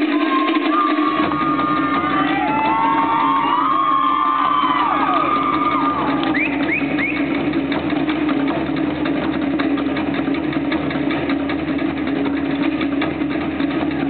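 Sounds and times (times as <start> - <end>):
audience whooping: 0.0 - 7.6
drum ensemble rapid rhythm: 0.0 - 14.0.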